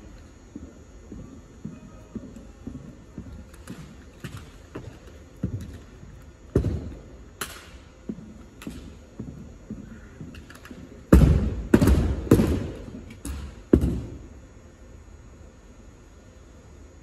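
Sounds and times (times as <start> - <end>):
footsteps on hardwood floor: 0.5 - 7.0.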